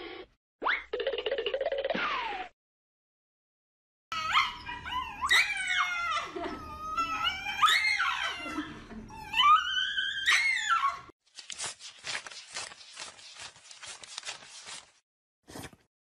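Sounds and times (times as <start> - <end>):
dog howling and screaming: 4.1 - 11.1.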